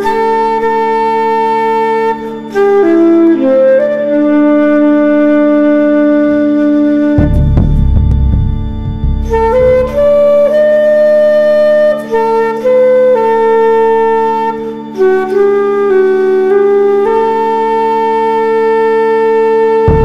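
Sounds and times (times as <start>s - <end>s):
slow woodwind melody: 0.0s - 20.0s
steady held drone: 7.2s - 11.0s.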